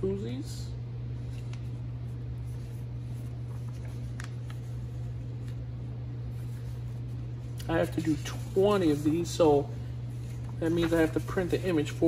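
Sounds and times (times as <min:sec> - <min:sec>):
paper rustling: 0:01.2 - 0:12.0.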